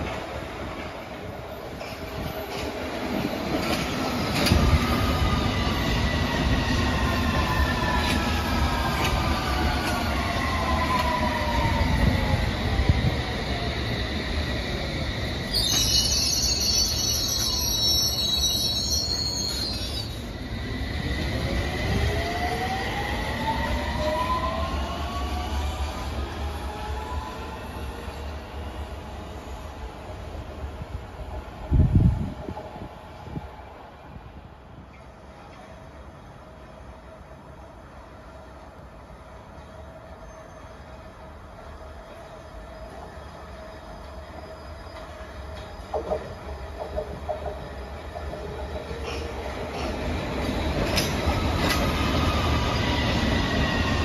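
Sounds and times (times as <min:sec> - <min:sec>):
wheels rumbling on rails: 0:44.9 - 0:54.0.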